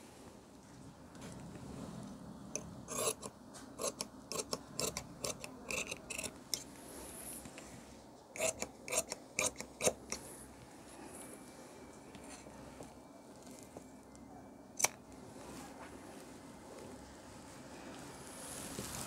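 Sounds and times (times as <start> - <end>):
shears snipping fabric: 2.9 - 6.6.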